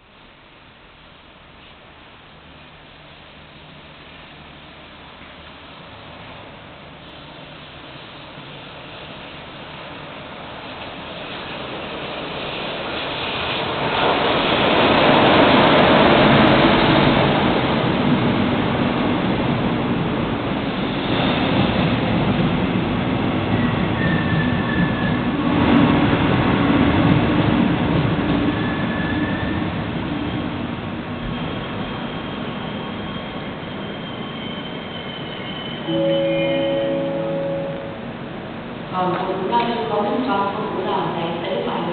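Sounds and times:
train rumbling past: 0.0s - 41.9s
brake squeals: 28.5s - 30.4s, 31.2s - 37.9s.

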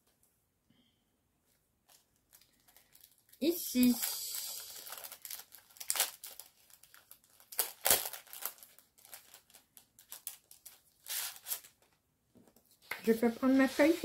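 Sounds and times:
packaging and paper crinkling: 1.8s - 12.0s.

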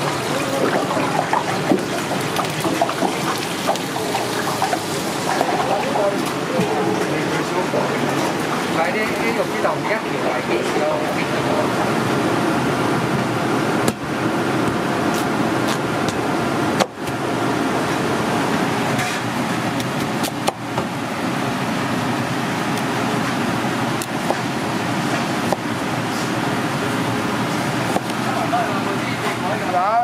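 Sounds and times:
kitchen background noise: 0.0s - 11.9s.

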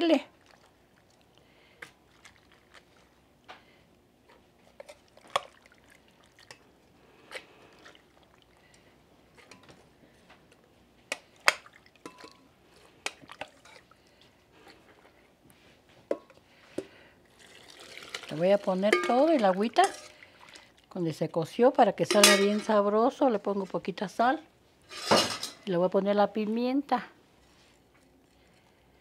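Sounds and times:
spoon scraping and knocking in pot: 18.9s - 20.2s, 22.0s - 22.8s, 24.9s - 25.6s.

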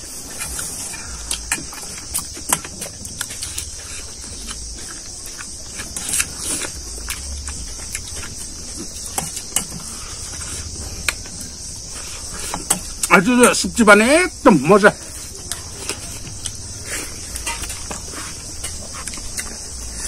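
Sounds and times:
insect chorus: 0.0s - 20.0s
chewing and lip smacks: 15.4s - 20.0s.

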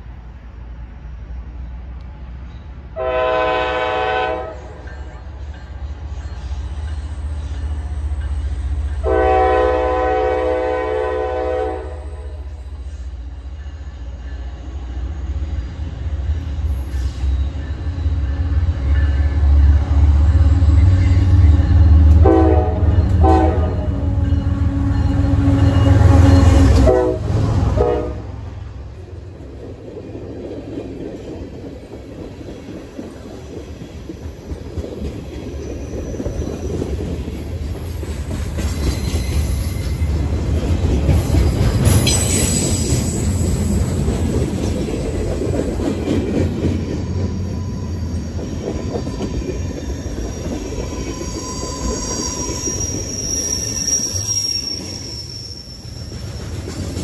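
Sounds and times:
diesel locomotive engine: 0.0s - 57.0s
train wheels rumbling on rail: 0.0s - 57.0s
locomotive horn blowing: 3.0s - 4.9s, 9.0s - 12.5s, 22.2s - 28.5s
high wheel squeal: 12.3s - 22.1s, 35.4s - 37.4s, 38.7s - 40.2s, 41.0s - 44.0s, 46.8s - 57.0s.

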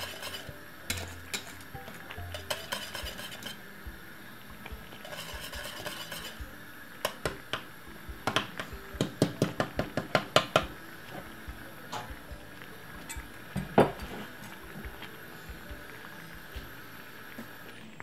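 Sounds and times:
whisk scraping pot: 0.0s - 3.6s, 4.8s - 7.6s
whisk clicking against metal pot: 2.3s - 3.6s.

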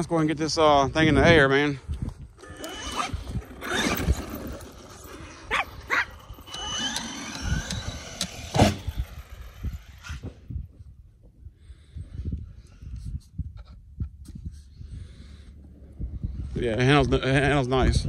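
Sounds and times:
electric toy truck whining: 2.4s - 10.4s
small dog barking: 5.5s - 6.1s.

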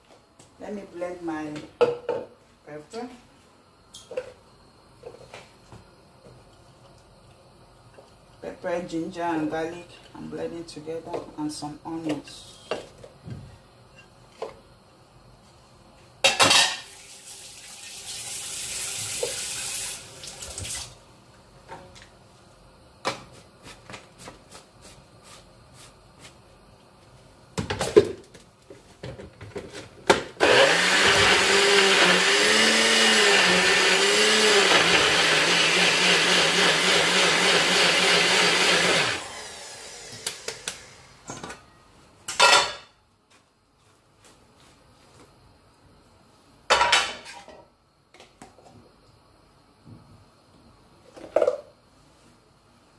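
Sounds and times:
blender motor running: 30.4s - 41.1s.

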